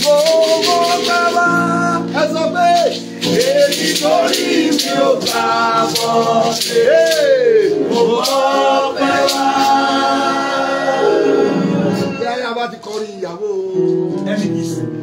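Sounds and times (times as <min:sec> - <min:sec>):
beaded shaker rattling: 0:00.0 - 0:09.9
man singing: 0:00.0 - 0:12.4.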